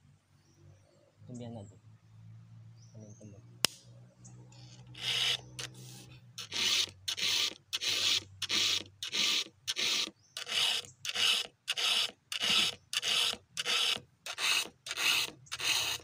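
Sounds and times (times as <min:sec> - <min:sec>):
file rasping on chainsaw chain: 0:05.0 - 0:16.0.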